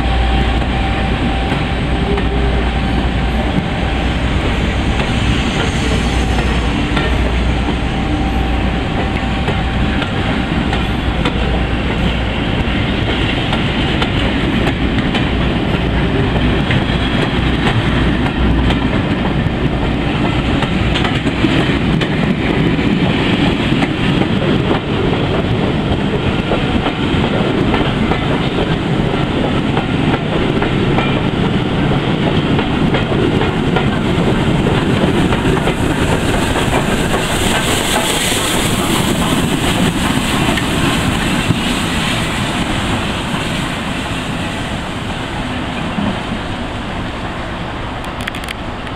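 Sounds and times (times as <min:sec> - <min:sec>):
train wheels clattering over rails: 0:03.4 - 0:44.4.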